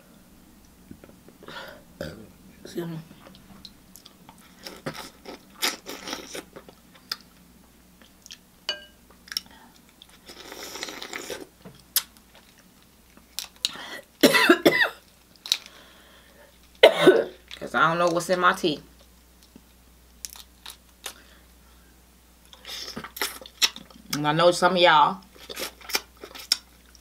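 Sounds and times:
person chewing: 0:03.2 - 0:07.4, 0:09.1 - 0:13.8, 0:25.4 - 0:27.0
loud coughs: 0:14.2 - 0:15.0, 0:16.8 - 0:17.4.

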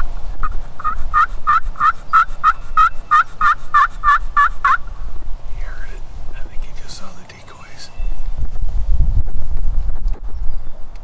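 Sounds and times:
turkey yelping: 0:00.4 - 0:04.9.

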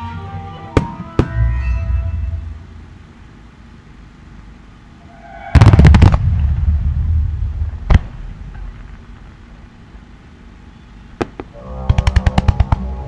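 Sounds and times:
firework bangs: 0:00.8 - 0:02.1, 0:05.1 - 0:09.5
firework rumble: 0:00.8 - 0:13.0.

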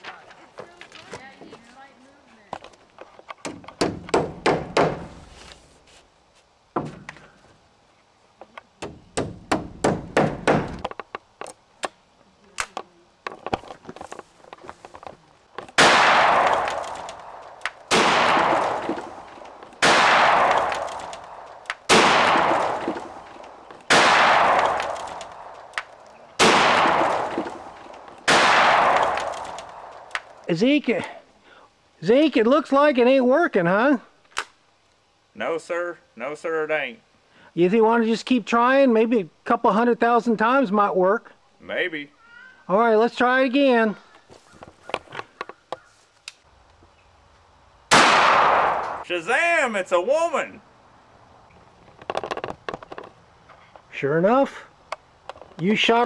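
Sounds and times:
hammer driving nails into wood: 0:03.4 - 0:05.1, 0:08.8 - 0:11.0
shotgun shots: 0:15.8 - 0:25.8, 0:26.4 - 0:30.2, 0:47.9 - 0:49.1.

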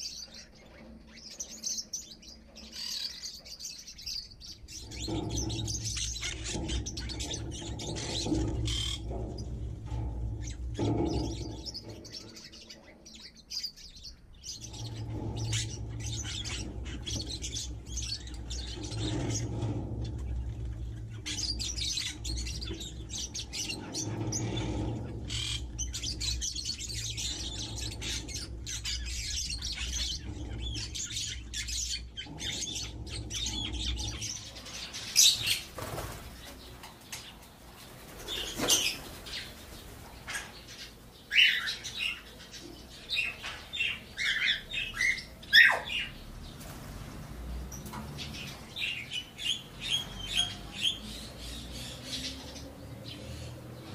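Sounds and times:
small birds chirping: 0:00.0 - 0:53.9
low steady rumble: 0:04.4 - 0:13.2, 0:13.9 - 0:35.7.

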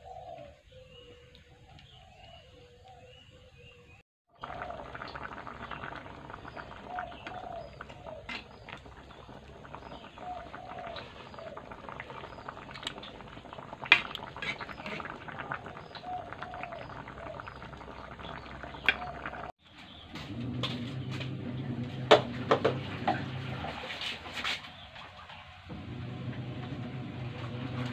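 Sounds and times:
bird calling: 0:00.0 - 0:13.4, 0:14.4 - 0:20.1
sauce simmering and bubbling: 0:04.3 - 0:19.6, 0:20.2 - 0:27.9
ladle stirring and scraping pan: 0:07.2 - 0:10.0, 0:13.8 - 0:15.6.

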